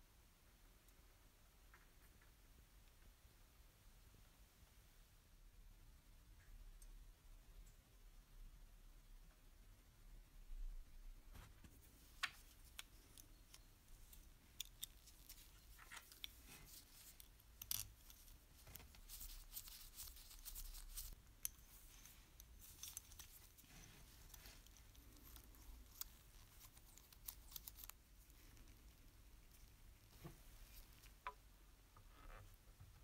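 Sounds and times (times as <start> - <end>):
small metal parts clicking: 12.1 - 28.8
metal parts scraping: 12.4 - 28.0.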